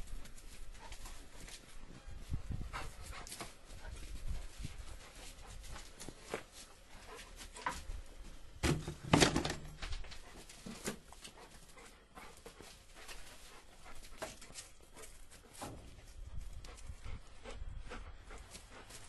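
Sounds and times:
loud knocks and rustling: 8.6s - 10.1s.

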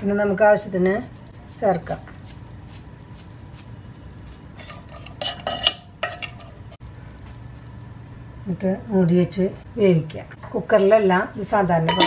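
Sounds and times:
low steady hum: 0.0s - 12.0s
ladle scraping and knocking pot: 4.5s - 6.8s.

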